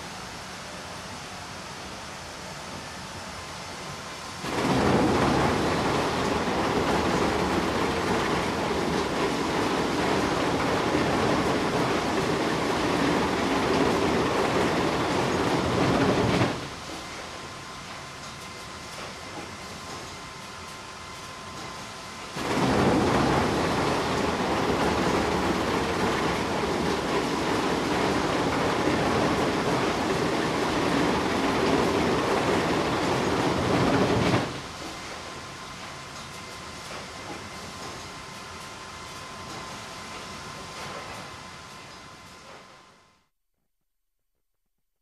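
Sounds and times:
sawmill machinery rattling: 0:04.4 - 0:17.5, 0:21.6 - 0:35.4
steady machine noise: 0:04.4 - 0:17.6, 0:22.3 - 0:34.6.

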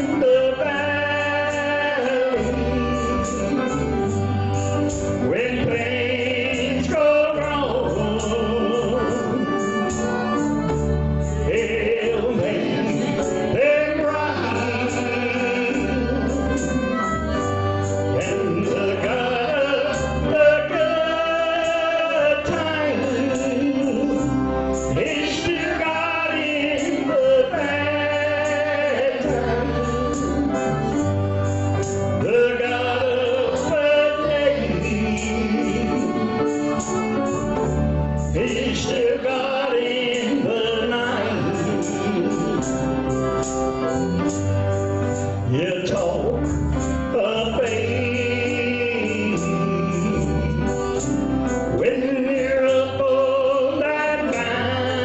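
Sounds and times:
man singing into a microphone: 0:00.0 - 0:31.1, 0:32.0 - 0:37.4, 0:38.2 - 0:43.4, 0:45.4 - 0:55.0
instrumental accompaniment: 0:00.0 - 0:55.0.

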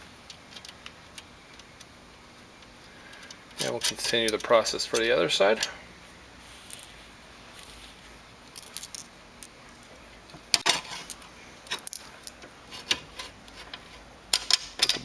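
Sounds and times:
bolts and washers clinking: 0:02.6 - 0:05.8, 0:10.3 - 0:15.0.

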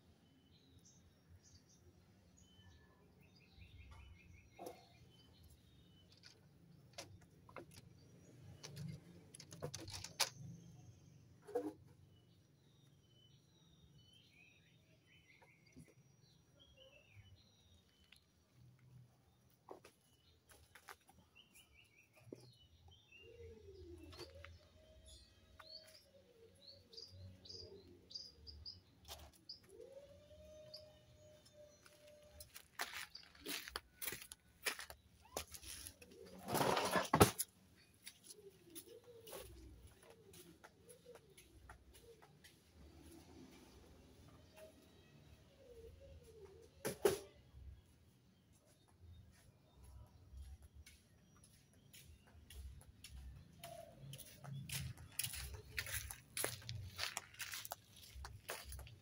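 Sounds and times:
faint small birds chirping: 0:00.0 - 0:36.8, 0:37.5 - 0:59.0.

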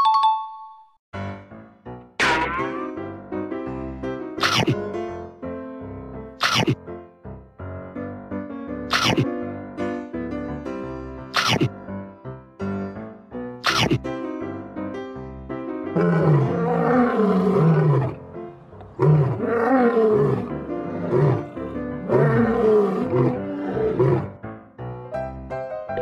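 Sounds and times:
lion roaring: 0:16.0 - 0:24.4.

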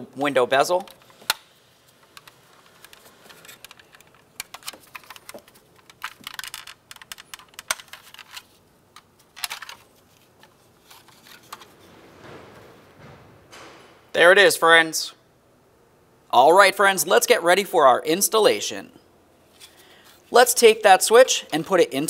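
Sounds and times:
plastic clicks: 0:00.8 - 0:12.3.

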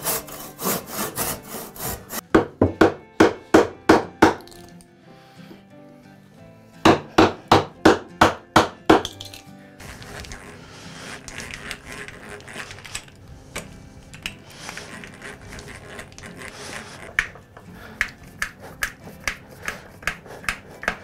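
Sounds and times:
drill rasping into wood: 0:00.0 - 0:02.2, 0:09.8 - 0:21.0.

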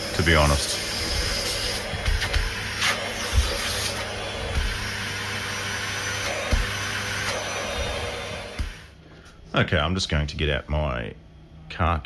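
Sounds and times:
vacuum cleaner running: 0:00.0 - 0:09.0.

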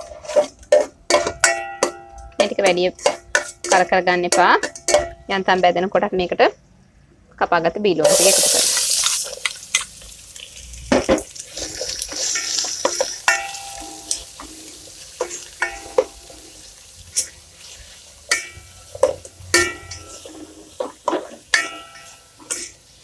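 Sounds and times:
spatula scraping a metal pot: 0:00.0 - 0:05.2, 0:11.5 - 0:22.8
onions sizzling in oil: 0:08.0 - 0:23.0.

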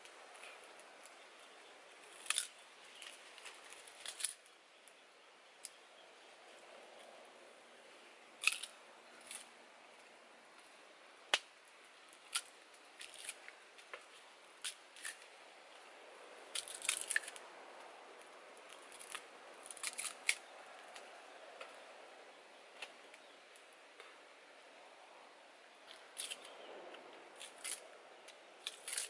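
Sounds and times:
faint steady hiss: 0:00.0 - 0:29.0
sugar cane crunching: 0:02.0 - 0:04.4, 0:08.4 - 0:09.5, 0:12.1 - 0:15.3, 0:16.5 - 0:17.4, 0:18.2 - 0:21.1, 0:25.9 - 0:26.6, 0:27.4 - 0:29.0.

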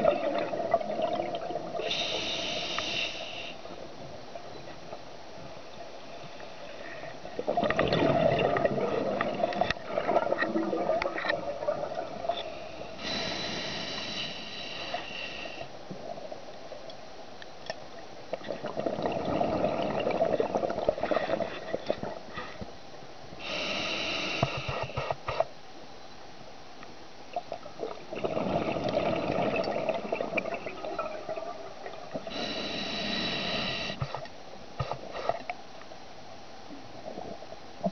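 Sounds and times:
bubbling exhale underwater: 0:00.0 - 0:02.3, 0:07.4 - 0:13.4, 0:18.5 - 0:22.2, 0:27.8 - 0:34.0
hissing regulator inhale: 0:01.8 - 0:03.6, 0:12.4 - 0:15.7, 0:23.4 - 0:25.4, 0:32.2 - 0:34.2.

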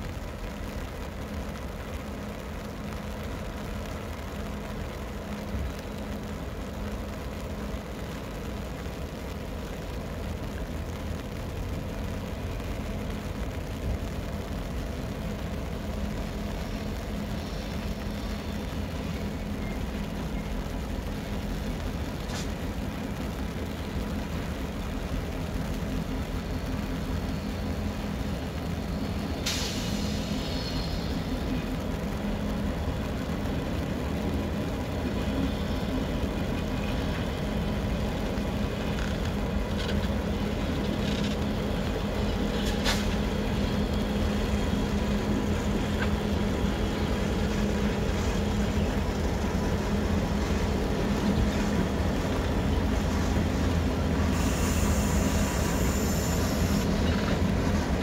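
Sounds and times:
diesel locomotive engine humming: 0:00.0 - 0:58.0
sharp hissing burst: 0:29.4 - 0:31.3, 0:54.2 - 0:57.0.

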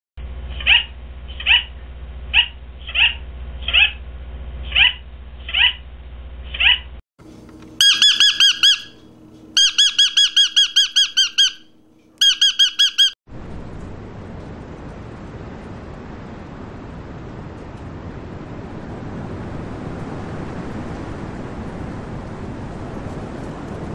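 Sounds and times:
rapid shrill parrot calls: 0:00.5 - 0:01.7, 0:02.3 - 0:04.0, 0:04.6 - 0:05.8, 0:06.5 - 0:06.9, 0:07.8 - 0:09.0, 0:09.6 - 0:13.2
parrot harsh squawks: 0:00.5 - 0:04.0, 0:04.6 - 0:05.8, 0:06.5 - 0:06.9, 0:07.8 - 0:09.0, 0:09.6 - 0:13.2.

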